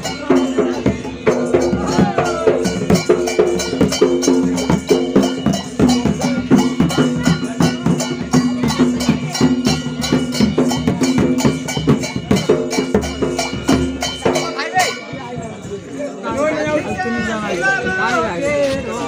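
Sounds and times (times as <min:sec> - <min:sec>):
barrel drum beaten: 0:00.0 - 0:15.3.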